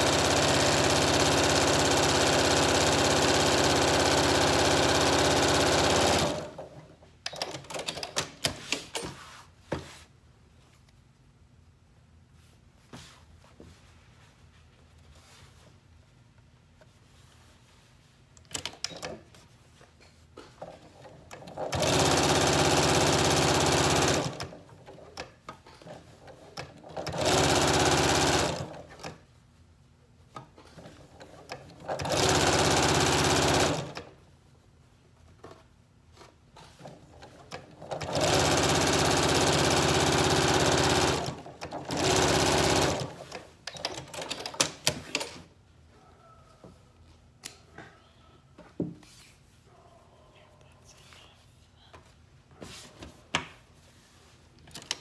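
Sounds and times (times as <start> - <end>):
sewing machine stitching: 0.0 - 8.8, 20.6 - 29.2, 30.6 - 34.2, 36.6 - 45.4.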